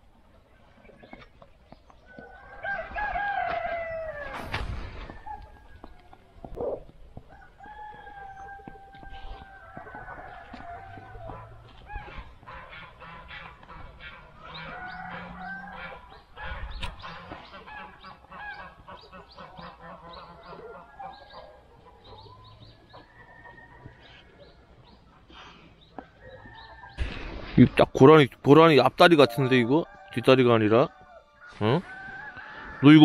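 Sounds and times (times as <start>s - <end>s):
chickens squawking cackles: 2.1s - 27.0s
thump: 4.3s - 5.1s.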